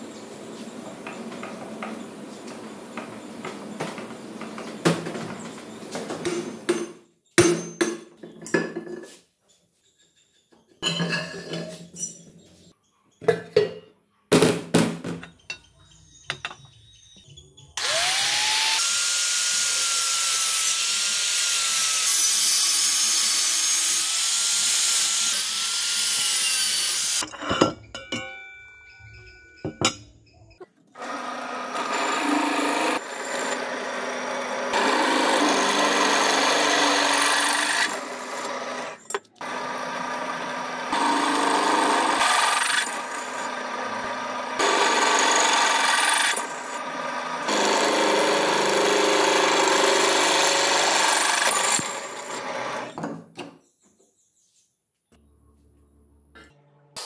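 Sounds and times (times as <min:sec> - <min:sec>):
drill press boring steel: 0:17.8 - 0:27.2, 0:31.0 - 0:53.0
angle grinder cutting steel: 0:17.8 - 0:27.3, 0:31.0 - 0:53.0.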